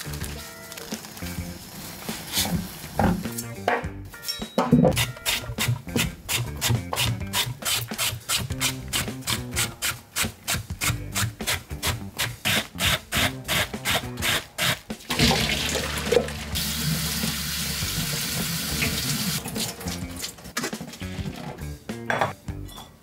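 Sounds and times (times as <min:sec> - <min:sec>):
water running from tap: 0:15.1 - 0:20.1.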